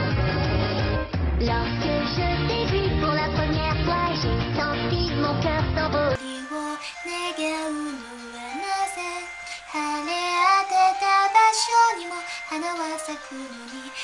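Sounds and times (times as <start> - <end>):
woman singing unaccompanied: 1.4 - 14.0.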